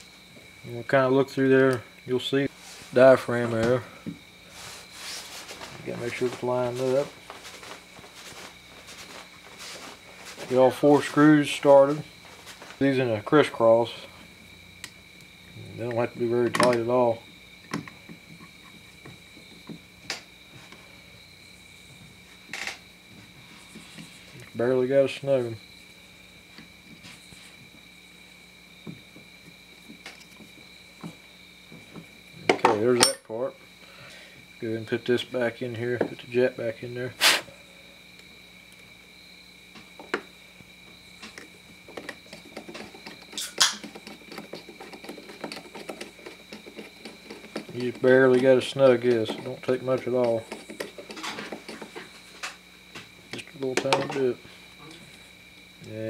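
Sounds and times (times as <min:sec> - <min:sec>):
screwdriver scraping ticks: 0:42.0 - 0:52.0.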